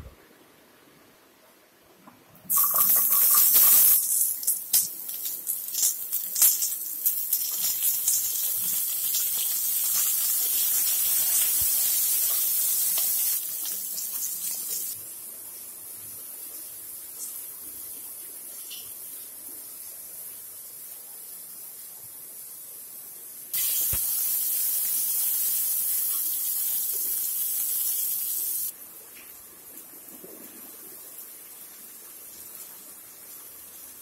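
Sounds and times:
faint steady hiss: 0.0s - 34.0s
shallots and garlic sizzling in oil: 2.5s - 19.4s, 23.5s - 28.8s.

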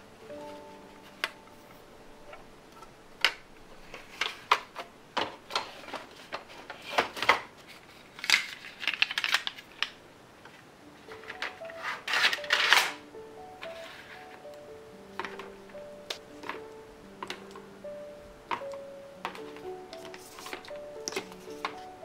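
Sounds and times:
rattling plastic clacks: 18.5s - 21.9s.

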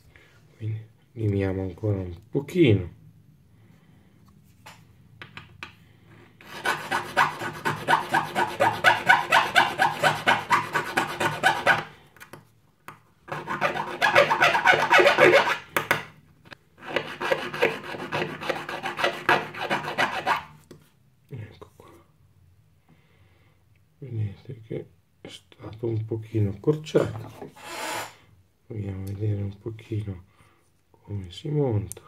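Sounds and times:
hand file rasping on metal: 6.4s - 11.9s, 13.3s - 15.7s, 16.8s - 20.5s.

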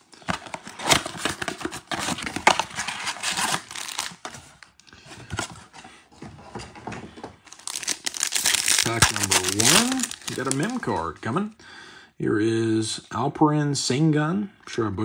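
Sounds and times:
card packs handling: 0.0s - 5.8s, 7.4s - 11.2s
foil wrapper crinkling: 0.8s - 4.2s, 7.5s - 11.0s
paper tearing: 7.7s - 10.8s.

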